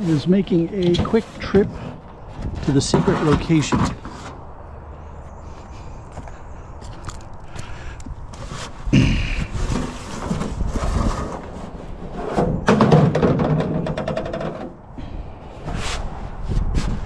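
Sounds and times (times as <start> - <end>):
metal downspout scraping and knocking: 0.0 - 4.4, 9.4 - 14.8.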